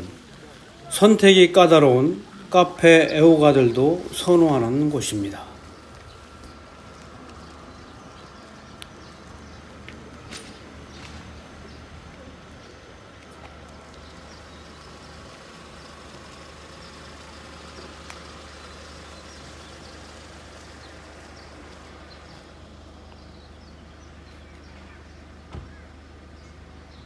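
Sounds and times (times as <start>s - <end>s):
birds chirping: 0.0s - 27.0s.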